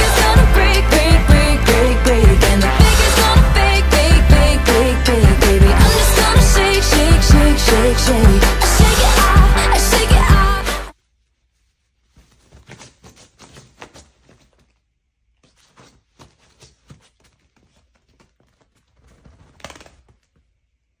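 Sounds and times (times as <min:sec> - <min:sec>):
music: 0:00.0 - 0:11.0
dog scratching fabric sofa cover: 0:12.1 - 0:14.8, 0:15.4 - 0:20.2.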